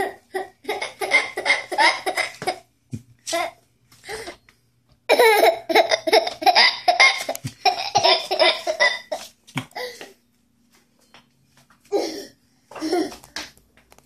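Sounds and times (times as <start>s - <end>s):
toddler laughing: 0.0s - 2.7s, 5.1s - 10.0s.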